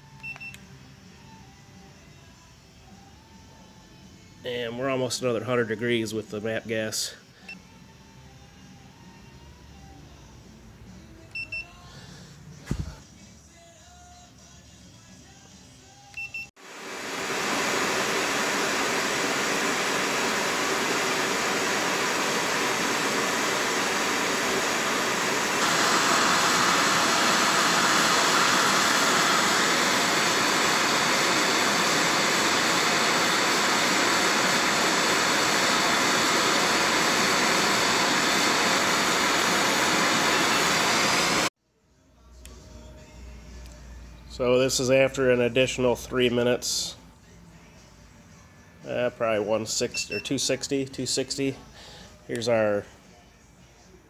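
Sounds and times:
gas torch flame hissing: 16.8 - 41.5.

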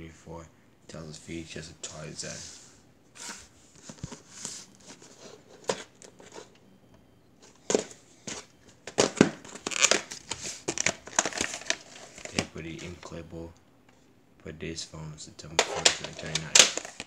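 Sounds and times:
plastic crinkling: 7.6 - 13.0, 15.6 - 17.0.

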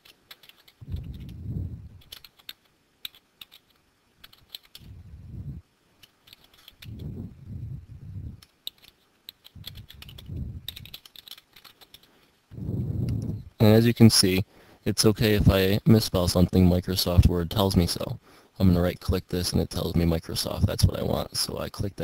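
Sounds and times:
dull low bumps: 0.8 - 2.1, 4.8 - 5.6, 6.8 - 8.4, 9.6 - 11.0, 12.5 - 13.6.

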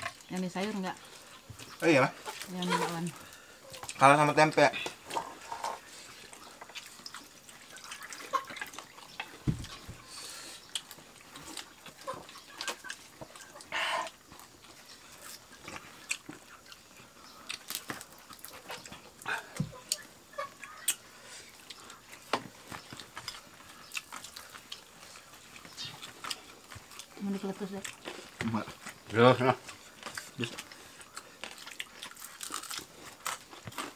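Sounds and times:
people chewing: 0.0 - 33.9
dull thumps: 9.4 - 10.0.

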